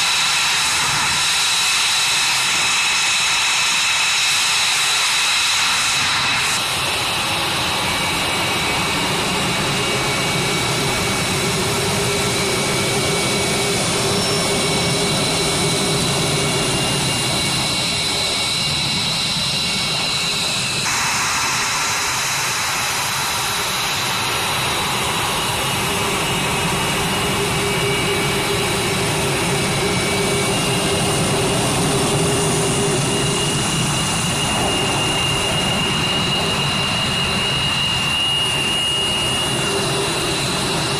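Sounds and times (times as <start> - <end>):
jet engines idling with whine: 0.0 - 40.9.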